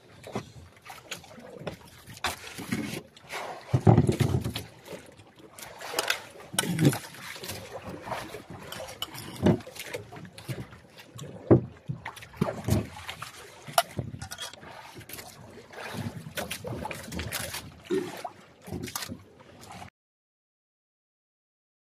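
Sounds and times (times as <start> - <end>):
sea noise: 0.0 - 19.9
wind: 0.0 - 19.9
knocks and scrapes on boat: 0.1 - 17.9, 18.6 - 19.9.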